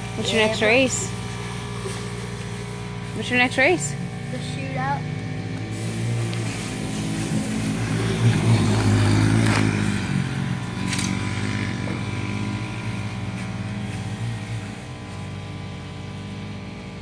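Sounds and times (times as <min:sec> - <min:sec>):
race vehicle engine passing: 0:05.0 - 0:14.6.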